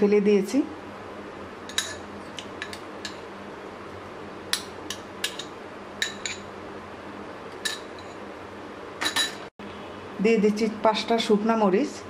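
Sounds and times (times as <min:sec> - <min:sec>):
utensils clinking on glass and steel: 0:09.0 - 0:09.5.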